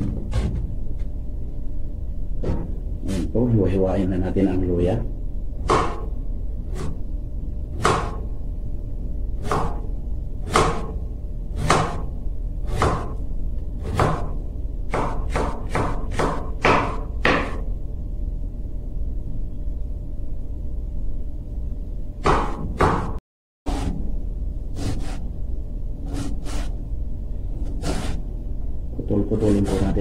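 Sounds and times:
steady low hum: 0.0s - 30.0s
knife cutting on board: 24.8s - 25.2s, 27.6s - 28.2s.

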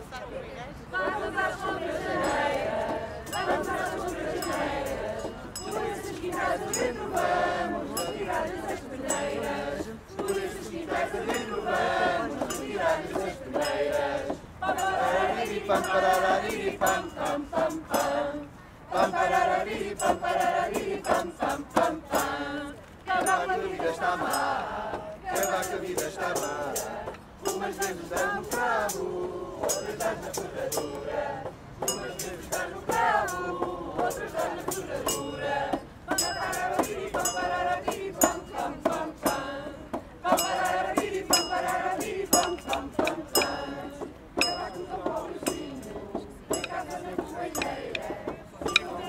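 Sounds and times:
group singing a carol: 0.8s - 49.0s
metallic percussion clinks: 2.0s - 22.4s, 25.3s - 31.2s, 31.8s - 39.5s, 40.3s - 49.0s.

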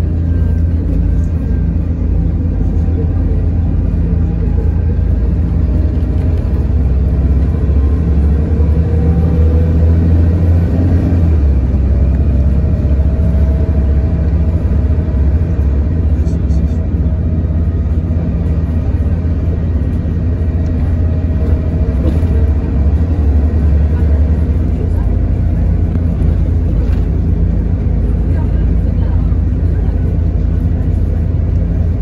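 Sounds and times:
bus engine rumble from inside: 0.0s - 32.0s.

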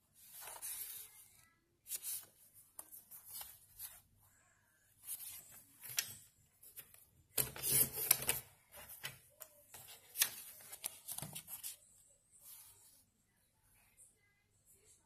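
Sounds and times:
paper rustling and scraping: 0.2s - 1.2s, 6.8s - 11.8s.

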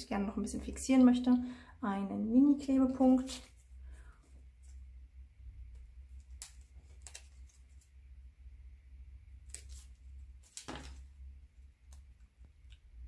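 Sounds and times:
low steady hum: 0.0s - 13.0s
paper strip rustling: 6.0s - 8.0s, 9.4s - 11.2s.

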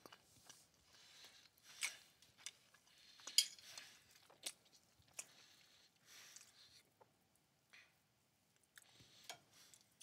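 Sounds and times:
person chewing: 0.0s - 7.1s.

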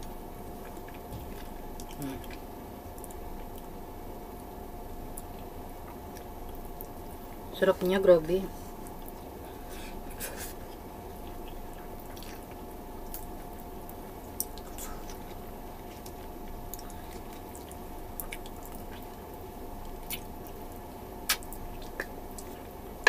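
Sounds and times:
steady background hum: 0.0s - 23.0s
wet chewing and biting: 10.7s - 19.2s, 19.8s - 22.7s.

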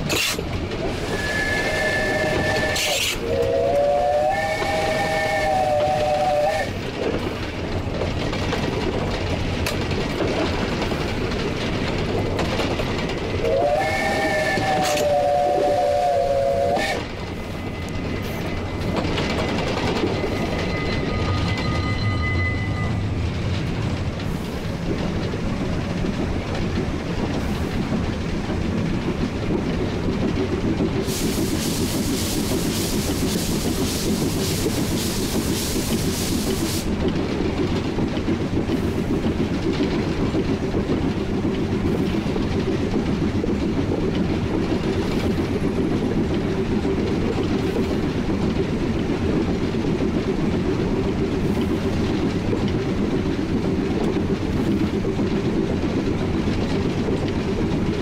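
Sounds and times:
loud steam hiss: 0.0s - 6.8s, 31.0s - 37.0s
steam locomotive rumble: 0.0s - 58.0s
locomotive whistle: 1.0s - 6.8s, 13.4s - 17.1s
wheels clacking over rail joints: 5.7s - 16.1s, 16.7s - 58.0s.

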